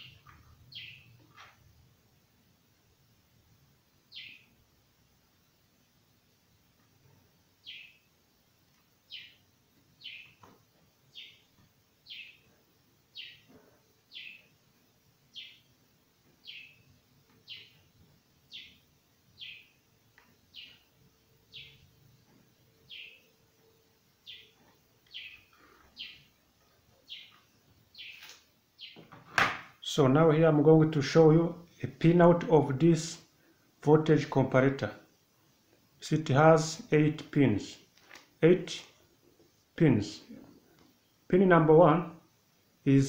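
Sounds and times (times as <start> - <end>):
bird chirping: 0.0 - 1.6, 4.0 - 4.7, 6.4 - 29.2.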